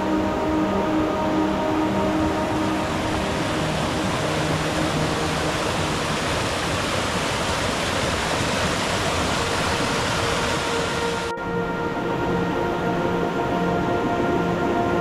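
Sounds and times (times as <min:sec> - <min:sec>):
stream rushing over rocks: 0:00.0 - 0:11.3.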